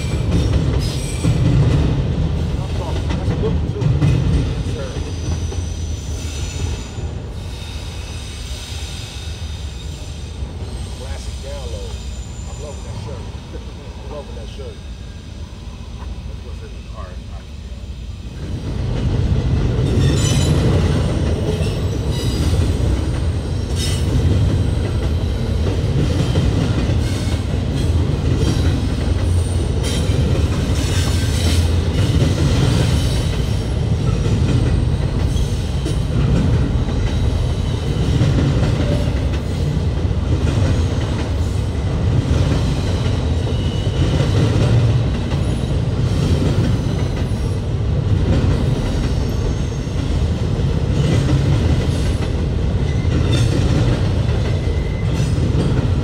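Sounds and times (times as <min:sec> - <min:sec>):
train wheels rumbling on rails: 0:00.0 - 0:56.0
high wheel squeals: 0:05.1 - 0:13.2.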